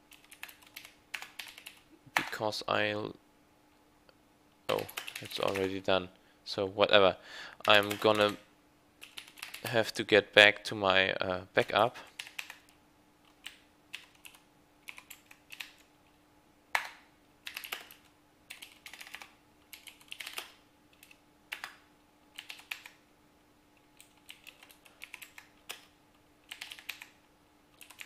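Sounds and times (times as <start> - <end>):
faint steady hum: 0.0 - 28.0
typing on a keyboard: 0.1 - 2.3, 4.7 - 5.8, 7.6 - 8.4, 9.0 - 9.7, 12.2 - 12.7, 13.3 - 15.9, 16.8 - 21.8, 22.4 - 23.0, 24.0 - 25.9, 26.5 - 27.2, 27.8 - 28.0.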